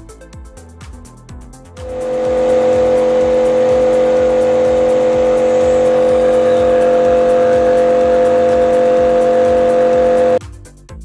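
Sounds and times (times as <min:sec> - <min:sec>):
pressure washer humming: 0:01.8 - 0:10.4.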